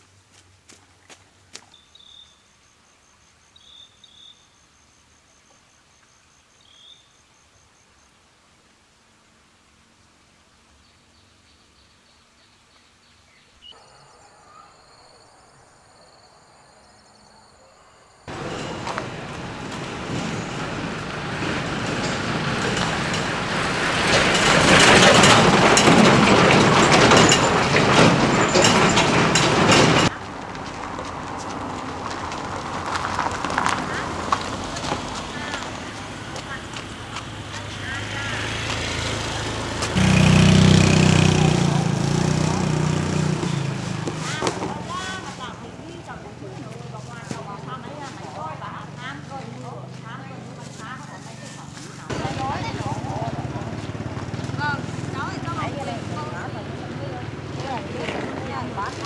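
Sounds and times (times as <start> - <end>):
footstep on dirt path: 0.0 - 2.3, 18.3 - 20.0, 30.1 - 37.6, 43.6 - 55.3
insect chirping: 1.7 - 8.7, 10.2 - 18.3
knocks and rattles: 18.3 - 30.2
dump truck driving past: 18.3 - 59.0.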